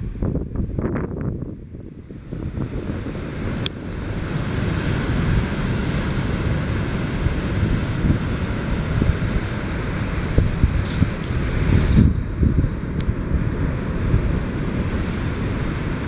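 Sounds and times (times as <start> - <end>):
wind buffeting microphone: 0.0 - 16.0
heavy surf breaking on rocks: 2.1 - 16.0.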